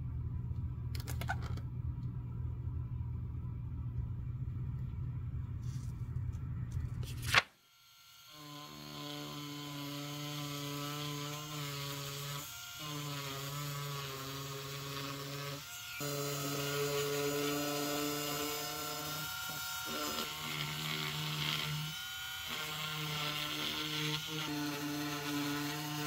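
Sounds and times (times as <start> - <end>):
rotary tool whining and grinding: 7.6 - 26.0.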